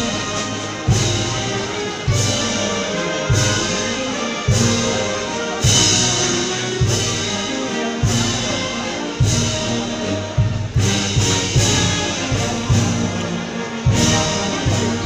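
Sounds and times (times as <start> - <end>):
brass band playing slow march: 0.0 - 15.0
bass drum beats: 13.9 - 15.0.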